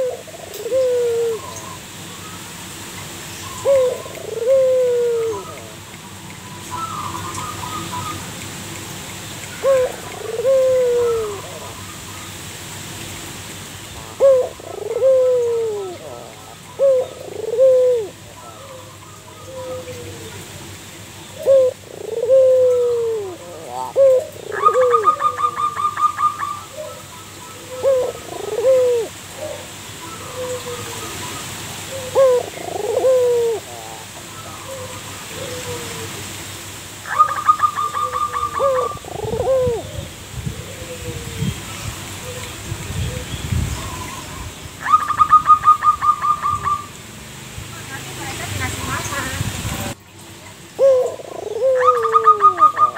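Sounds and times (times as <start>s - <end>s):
dove cooing: 0.0s - 1.8s, 3.5s - 5.9s, 9.5s - 11.9s, 14.0s - 20.5s, 21.3s - 31.1s, 31.8s - 36.2s, 37.0s - 41.5s, 43.1s - 46.9s, 50.8s - 52.9s.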